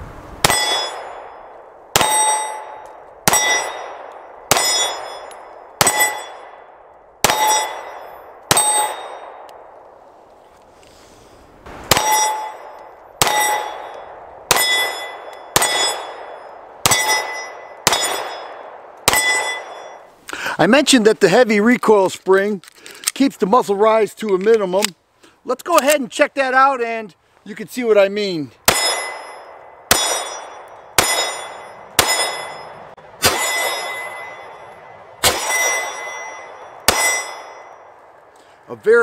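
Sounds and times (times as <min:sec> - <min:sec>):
steel target clanging: 0:00.4 - 0:06.6, 0:11.9 - 0:20.1, 0:28.7 - 0:37.9
pistol shots: 0:00.4 - 0:09.6, 0:11.7 - 0:20.0, 0:28.7 - 0:34.6, 0:35.2 - 0:37.9.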